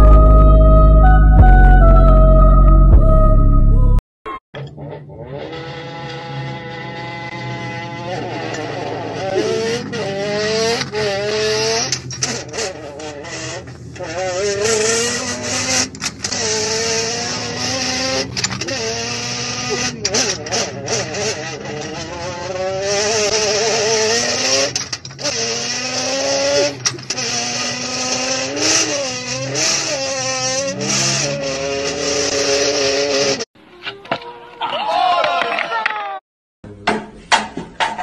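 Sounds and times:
man imitating racing car engine: 4.6 - 33.4.

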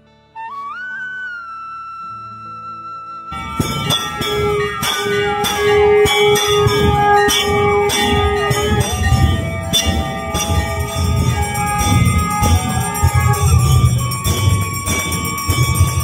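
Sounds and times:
wavering melodic line: 3.3 - 16.0
held tone: 3.4 - 16.0
temple bells ringing: 3.4 - 16.0.

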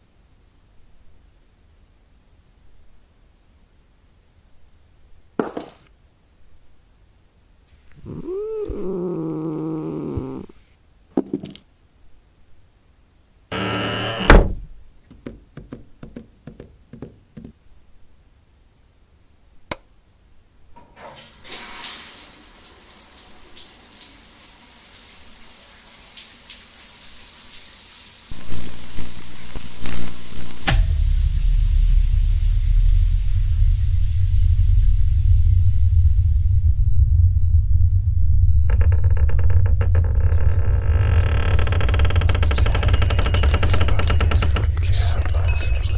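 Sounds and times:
cat meowing: 8.0 - 10.6
steady hiss: 21.1 - 36.8.

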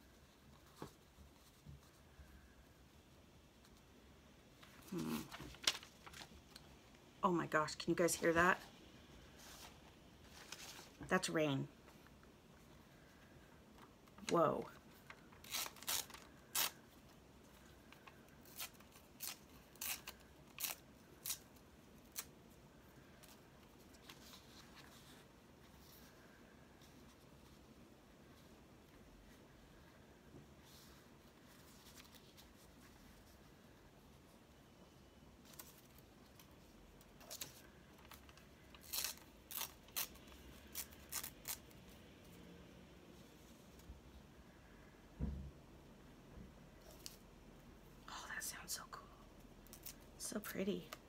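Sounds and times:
paper crackling and tearing: 4.7 - 6.4, 15.3 - 16.8, 18.4 - 22.3, 37.2 - 41.8.

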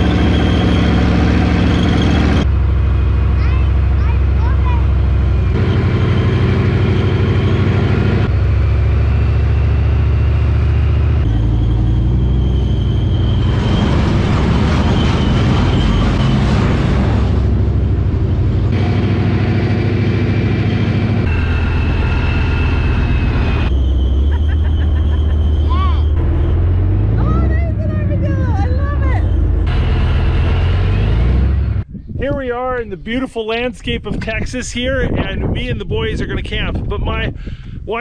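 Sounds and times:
tank diesel engine droning: 0.0 - 31.9
rushing noise: 5.1 - 27.4
thin high whine: 20.6 - 26.6.

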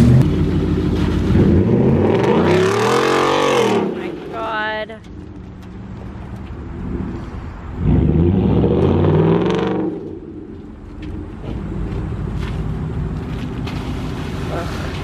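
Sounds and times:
truck engine revving: 0.0 - 15.0
wheels spinning on dirt: 10.0 - 15.0.

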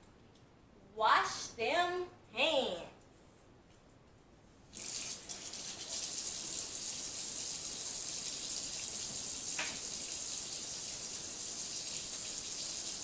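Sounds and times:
faucet running into sink: 4.8 - 13.0.

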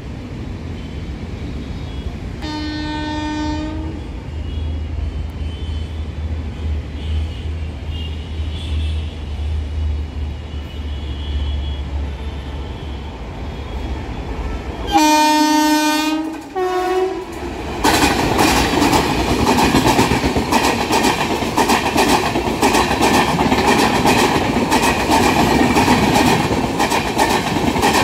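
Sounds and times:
locomotive horn blast: 2.4 - 4.7, 13.9 - 17.4.

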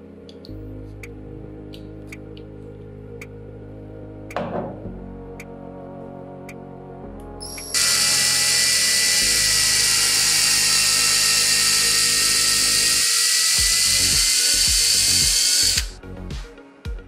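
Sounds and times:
electric drill whining: 7.4 - 16.0.

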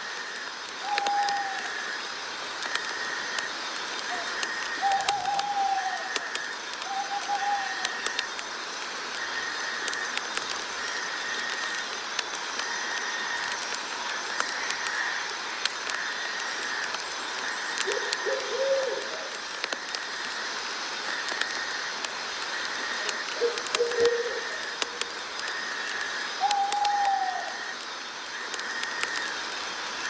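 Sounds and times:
buzzing insect call: 0.0 - 30.0
steady hiss: 0.0 - 30.0
faint clicks: 2.6 - 29.4
wavering bird call: 4.1 - 8.2, 22.8 - 27.8.

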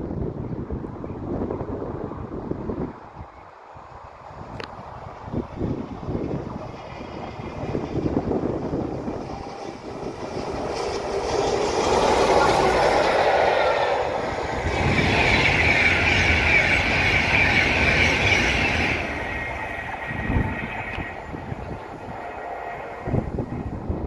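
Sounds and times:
train wheels on rails: 4.3 - 24.0
train hissing whine: 5.3 - 24.0.

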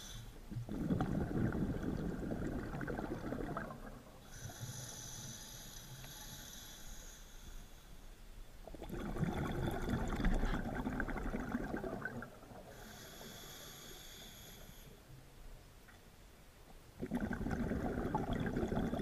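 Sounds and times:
regulator hissing inhale: 0.0 - 0.4, 4.2 - 8.3, 12.7 - 15.1
exhaled bubbles burbling: 0.5 - 4.3, 8.6 - 12.8, 17.0 - 19.0.

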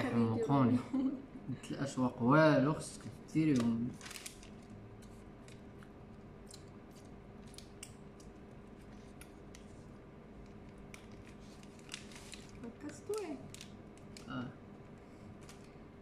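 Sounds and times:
steady low hum: 0.0 - 16.0
crinkles of pastry and wrapper: 2.9 - 16.0.

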